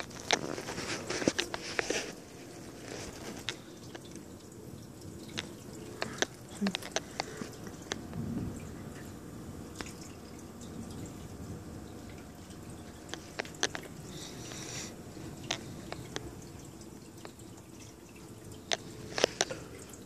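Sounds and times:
low background hiss: 0.0s - 20.0s
rainwater dripping: 0.0s - 20.0s.

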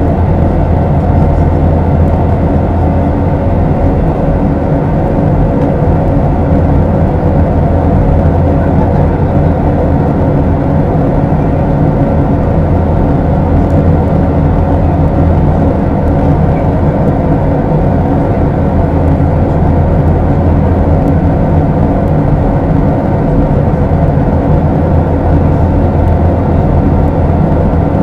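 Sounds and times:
jet engine drone: 0.0s - 28.0s.

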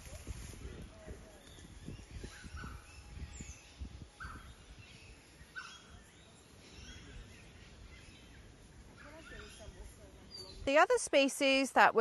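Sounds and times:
faint bird chirps: 1.3s - 10.7s.

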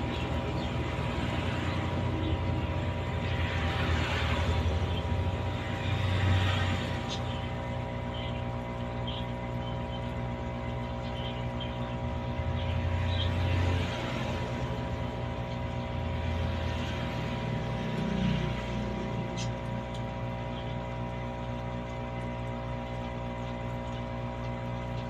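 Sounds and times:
air pump humming: 0.0s - 25.0s.

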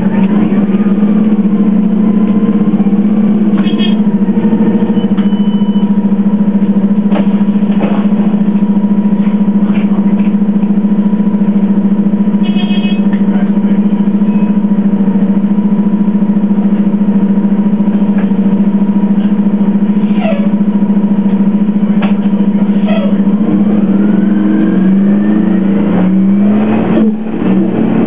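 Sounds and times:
bus engine idling: 0.0s - 28.0s
brief high squeak: 3.6s - 4.0s, 12.4s - 13.0s.

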